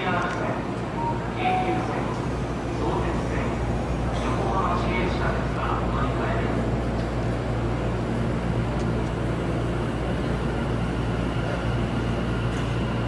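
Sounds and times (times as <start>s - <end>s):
train rumble in tunnel: 0.0s - 13.0s
faint high tone: 1.0s - 2.3s.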